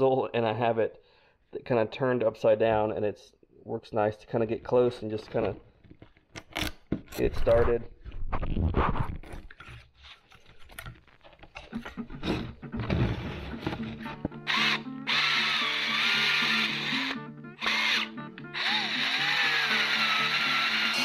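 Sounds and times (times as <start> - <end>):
background music: 11.6 - 21.0.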